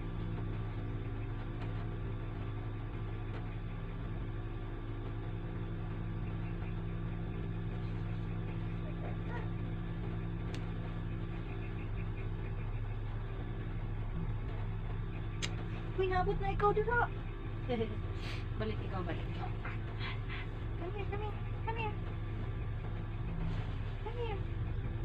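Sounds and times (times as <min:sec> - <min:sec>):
machine humming: 0:00.0 - 0:25.0
faint click: 0:15.4 - 0:15.6.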